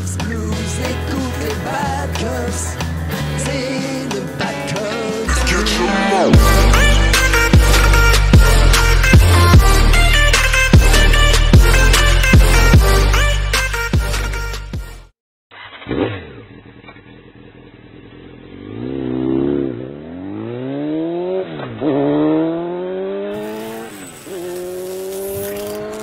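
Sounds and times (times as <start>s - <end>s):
vehicle engine revving and accelerating: 15.6s - 26.0s.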